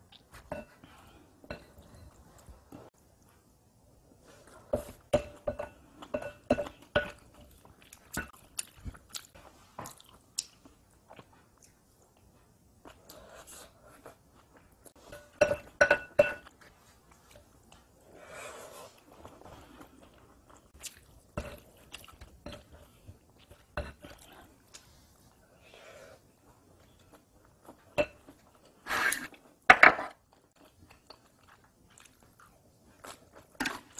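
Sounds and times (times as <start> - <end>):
person chewing food: 6.0 - 15.8, 16.4 - 25.0, 30.3 - 33.9.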